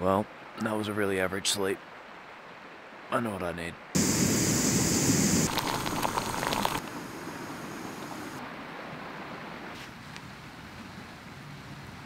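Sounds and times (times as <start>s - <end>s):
camp stove burner hiss: 4.0s - 8.4s
water bubbling and crackling: 5.1s - 8.4s.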